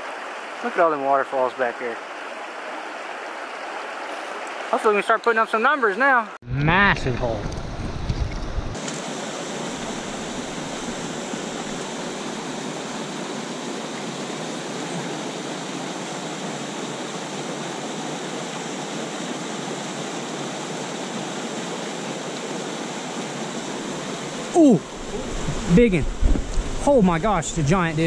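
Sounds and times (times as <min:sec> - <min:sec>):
waterfall rushing: 0:08.8 - 0:28.0.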